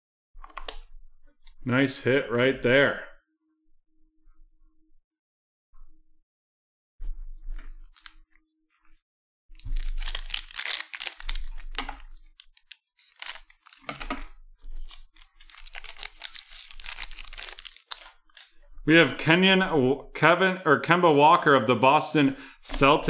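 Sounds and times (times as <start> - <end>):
foil wrapper crinkling and tearing: 9.6 - 14.2, 14.8 - 18.6.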